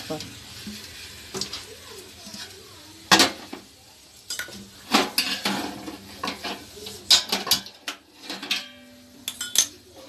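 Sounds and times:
metal pot clanking and scraping: 4.3 - 10.0.

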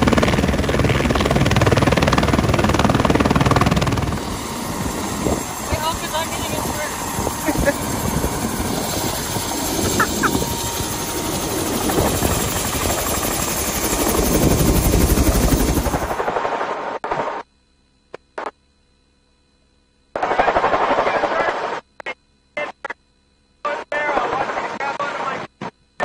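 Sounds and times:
helicopter rotor chopping: 0.0 - 16.6.

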